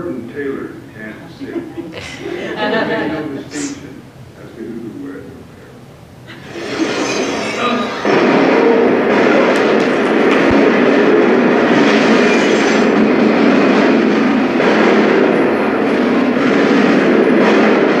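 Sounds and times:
automatic rifle fire over speakers: 8.1 - 18.0.

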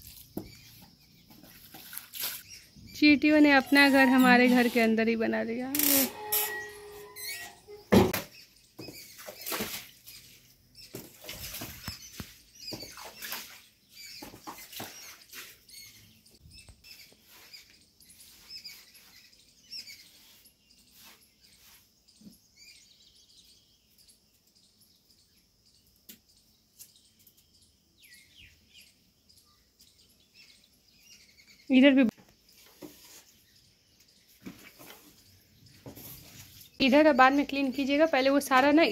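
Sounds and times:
small birds chirping: 0.0 - 38.9
scraping and rubbing while cleaning: 3.8 - 5.1, 16.9 - 22.3.

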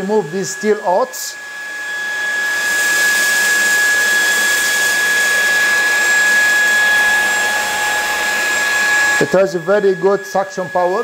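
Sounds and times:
stick vacuum running: 0.0 - 11.0.

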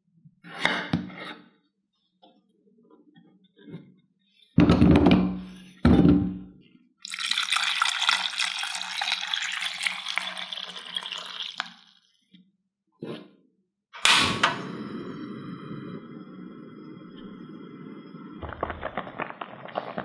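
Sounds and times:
water pouring into pot: 7.0 - 12.1, 17.0 - 20.0.

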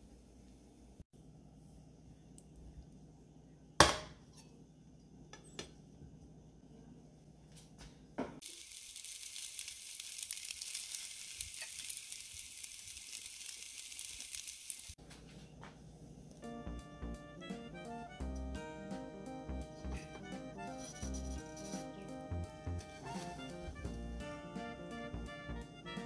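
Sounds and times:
high sizzling hiss: 8.4 - 15.0.

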